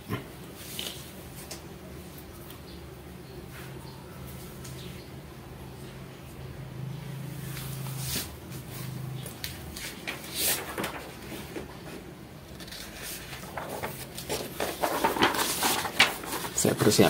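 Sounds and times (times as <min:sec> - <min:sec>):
rustling: 0:07.5 - 0:17.0.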